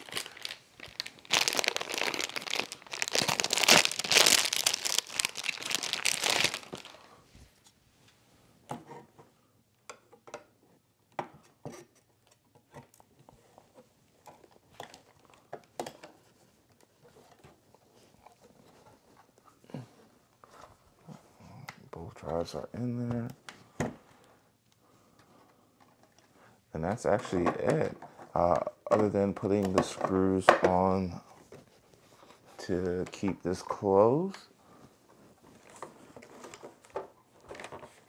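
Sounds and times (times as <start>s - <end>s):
plastic bag crinkling: 0.0s - 7.2s.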